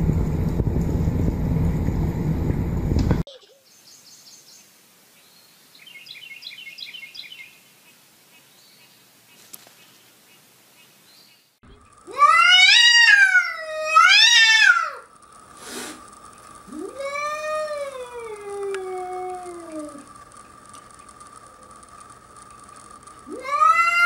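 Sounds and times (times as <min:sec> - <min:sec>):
cat yowling: 0:12.1 - 0:15.1, 0:16.7 - 0:20.1, 0:23.3 - 0:24.0.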